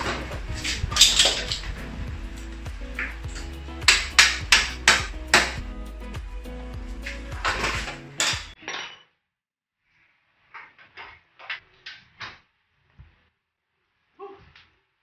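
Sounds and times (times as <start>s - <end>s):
metal parts clanking together: 0.0s - 1.7s, 7.0s - 9.1s.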